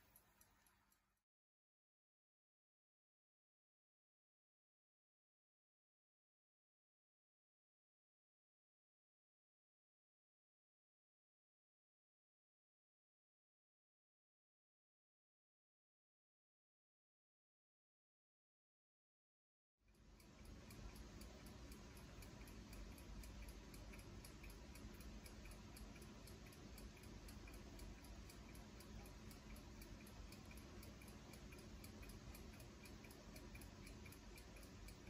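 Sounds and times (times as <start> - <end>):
clock ticking: 19.9 - 35.0.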